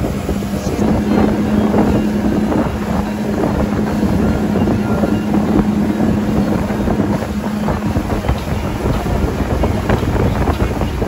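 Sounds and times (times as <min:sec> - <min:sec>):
motorboat engine drone: 0:00.0 - 0:11.0
wind buffeting microphone: 0:00.0 - 0:11.0.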